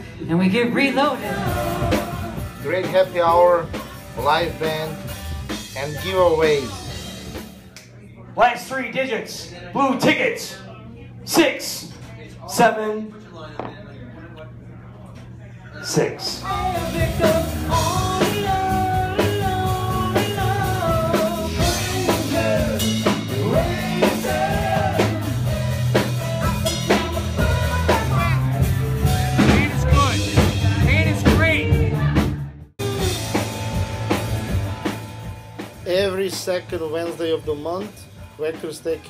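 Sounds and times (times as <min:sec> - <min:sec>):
drum kit: 0:01.1 - 0:07.8, 0:16.4 - 0:39.0
lead singer: 0:01.2 - 0:02.6, 0:16.4 - 0:33.5.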